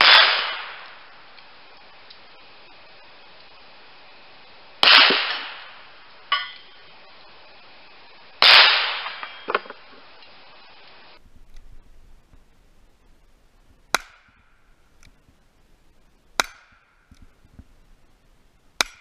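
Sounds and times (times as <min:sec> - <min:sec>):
pistol shots with echo: 0:00.0 - 0:01.0, 0:04.8 - 0:05.8
metal clank: 0:06.3 - 0:06.8
steel target ringing: 0:06.3 - 0:06.9.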